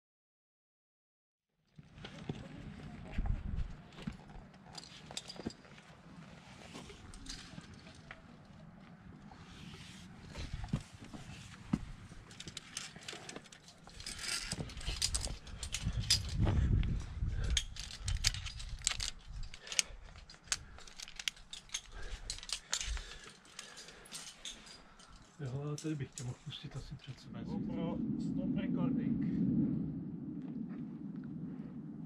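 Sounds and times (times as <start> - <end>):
carabiners clinking on steel cable: 4.0 - 5.9, 6.7 - 8.5, 12.2 - 16.4, 17.4 - 26.4
low microphone rumble: 26.5 - 32.0.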